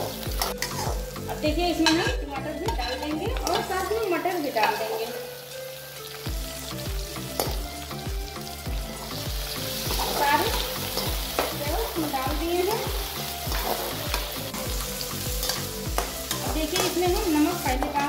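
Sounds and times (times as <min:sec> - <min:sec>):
vegetables sizzling in oil: 0:00.0 - 0:18.0
metal spoon scraping pan: 0:00.4 - 0:03.8.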